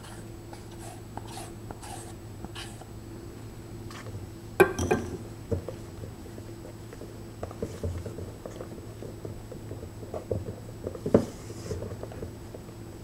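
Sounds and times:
spatula folding egg whites: 0.0 - 2.9.

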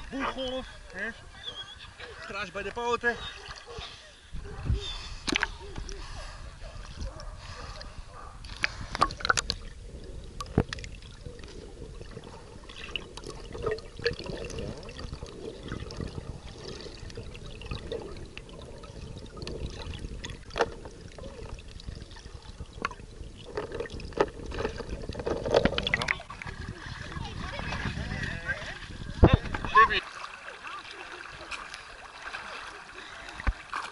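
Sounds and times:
water sloshing and gurgling: 0.0 - 33.9
dog paddling splashes: 10.7 - 33.9.

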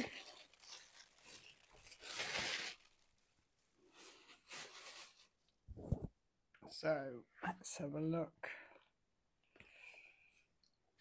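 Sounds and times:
plastic mailing bag rustling: 0.0 - 3.2.

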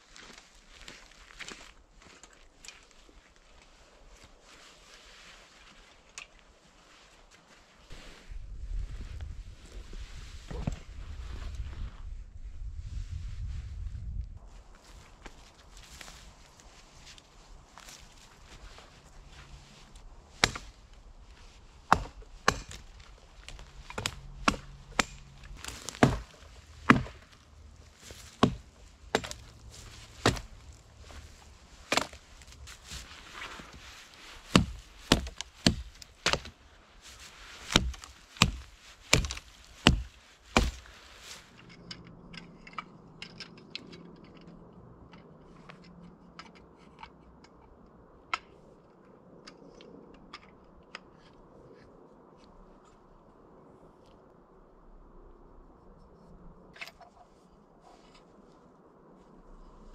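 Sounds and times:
axe chopping wood: 20.4 - 20.8, 21.9 - 33.0, 34.5 - 36.6, 37.2 - 40.9.

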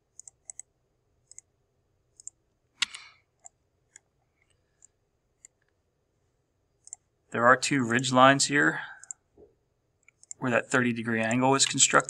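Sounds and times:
computer mouse clicking: 0.1 - 1.5, 2.1 - 5.8, 6.8 - 7.1, 9.0 - 9.2, 10.0 - 10.4.

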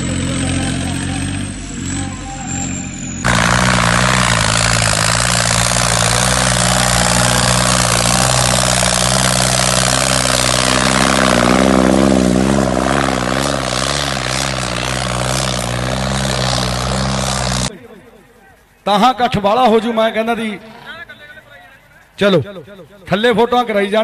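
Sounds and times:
diesel tractor engine under load: 0.0 - 18.2.

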